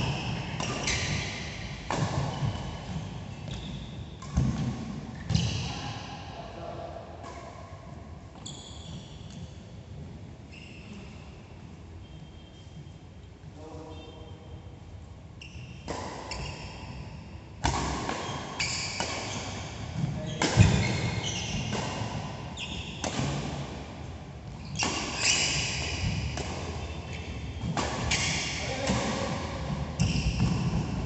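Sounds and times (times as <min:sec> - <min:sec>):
shoes squeaking on court: 0:00.0 - 0:04.6, 0:05.2 - 0:05.8, 0:08.3 - 0:09.5, 0:15.4 - 0:17.1, 0:18.1 - 0:23.2, 0:24.5 - 0:28.8, 0:30.0 - 0:30.9.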